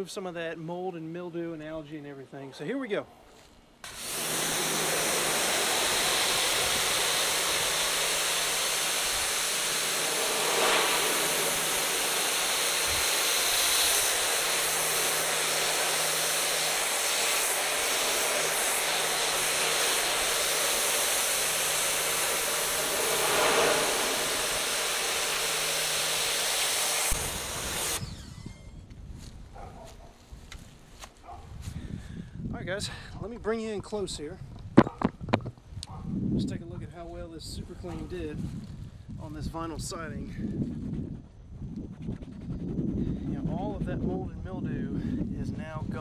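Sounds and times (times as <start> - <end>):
pressure washer spraying siding: 3.8 - 28.6
motor hum: 3.8 - 29.0.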